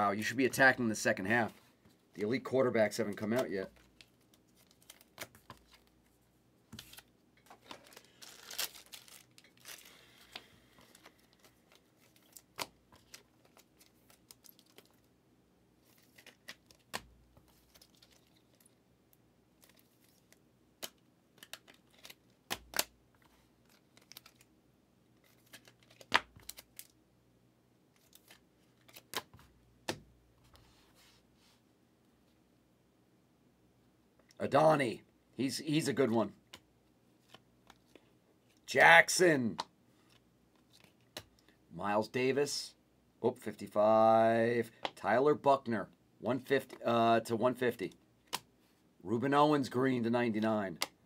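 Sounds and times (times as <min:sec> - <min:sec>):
plastic crinkling: 0:06.8 - 0:15.1.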